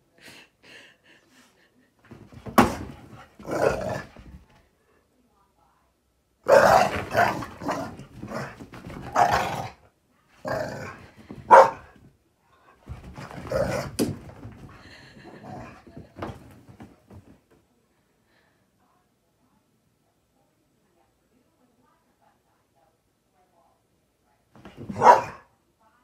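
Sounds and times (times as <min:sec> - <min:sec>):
dogs growling: 0:02.7 - 0:04.4, 0:06.5 - 0:09.8, 0:10.4 - 0:11.8, 0:12.9 - 0:16.4.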